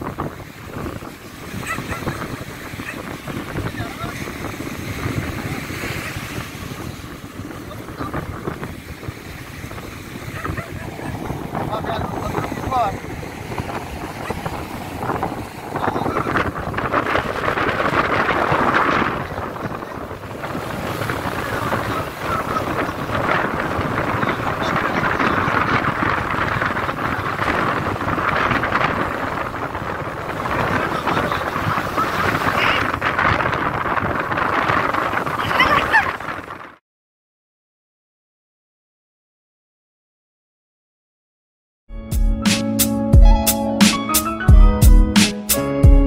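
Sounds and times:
sea surf on beach: 0.0s - 36.8s
wind buffeting microphone: 0.0s - 36.8s.

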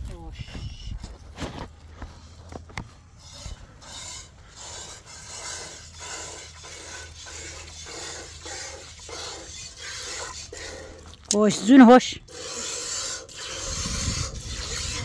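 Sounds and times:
rhythmic scraping strokes: 3.1s - 11.7s, 12.3s - 15.0s.

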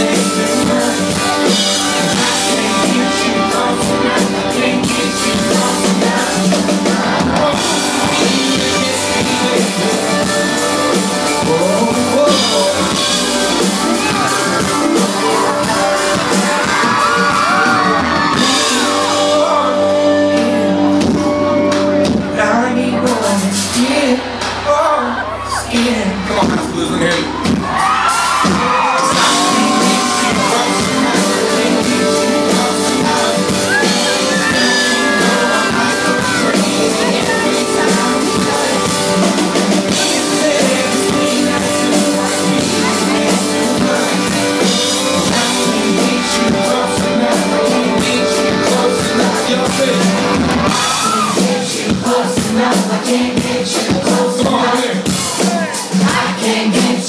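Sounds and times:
man singing: 0.0s - 27.5s, 28.4s - 57.0s
live country band playing: 0.0s - 57.0s.

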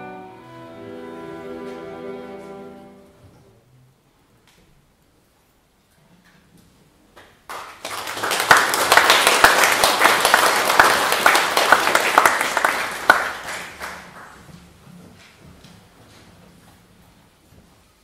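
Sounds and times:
audience clapping: 7.2s - 14.5s.

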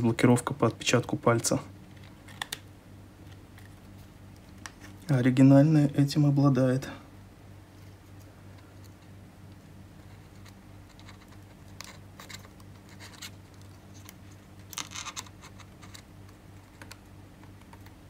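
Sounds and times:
low electrical hum: 0.0s - 18.0s
fingers clicking phone connectors: 10.3s - 18.0s.

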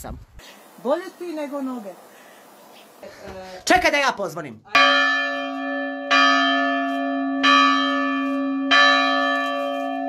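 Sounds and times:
church bell ringing: 4.8s - 10.0s.

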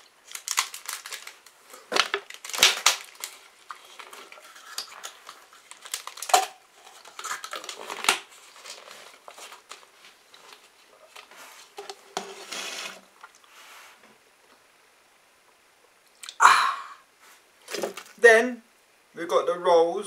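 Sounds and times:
plastic packaging crinkling: 0.0s - 13.5s, 17.6s - 18.2s.

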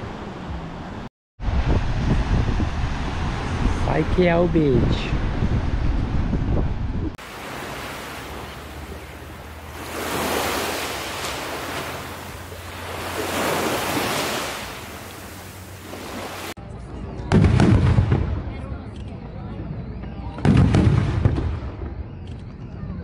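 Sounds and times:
small waves washing onto beach: 7.2s - 16.6s.

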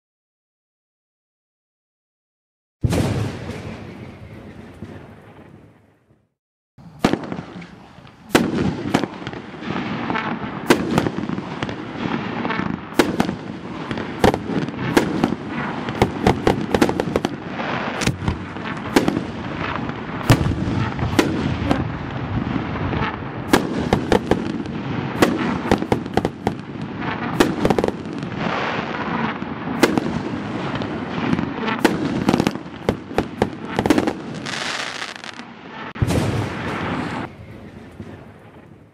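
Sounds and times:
fireworks bangs: 2.8s - 6.1s, 6.8s - 38.9s.

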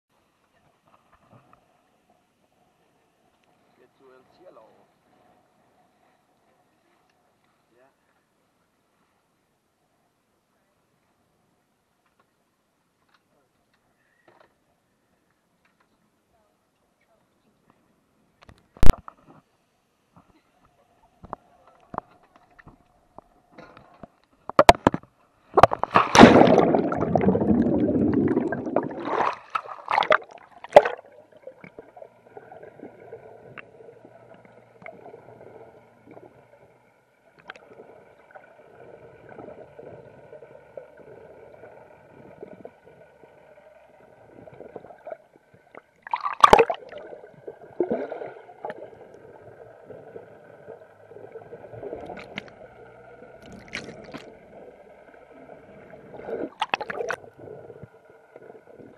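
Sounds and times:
soft underwater gurgles: 20.4s - 58.9s
water splashing and bubbling: 25.5s - 36.6s, 37.4s - 58.9s
muffled underwater hum: 30.8s - 46.0s, 46.8s - 58.9s.

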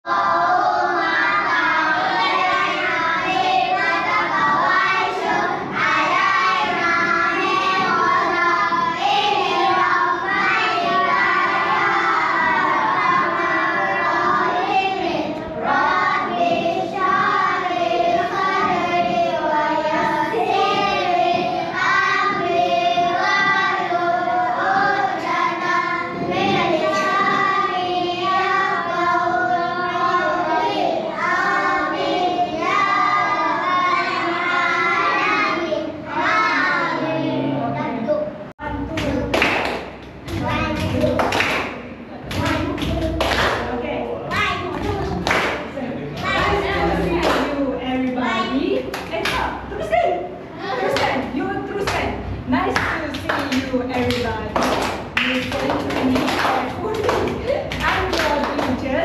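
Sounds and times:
children singing together: 0.0s - 43.6s, 46.2s - 47.7s, 50.2s - 51.3s.

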